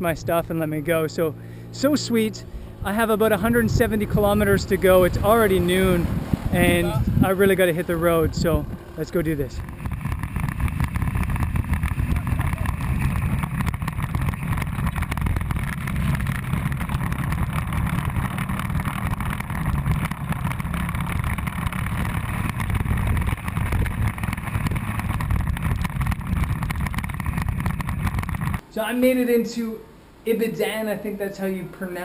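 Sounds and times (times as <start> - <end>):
motorbike engine drone: 0.0 - 28.6
road noise: 0.0 - 28.7
wind noise: 2.4 - 28.6.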